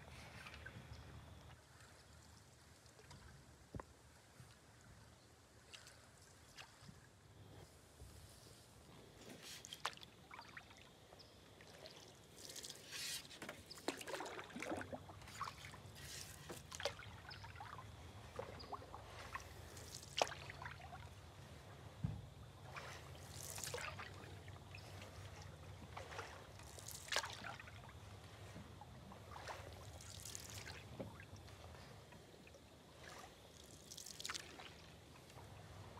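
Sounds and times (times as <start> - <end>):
paddle strokes in water: 0.0 - 35.9
water dripping off paddle: 11.7 - 17.8, 18.4 - 21.0, 29.3 - 32.2.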